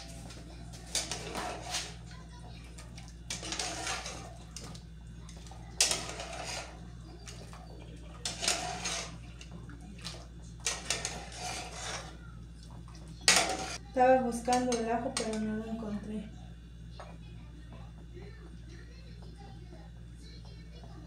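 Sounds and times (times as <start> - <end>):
ladle scraping metal pot: 0.9 - 2.0, 3.3 - 4.8, 5.8 - 12.2, 13.2 - 13.8.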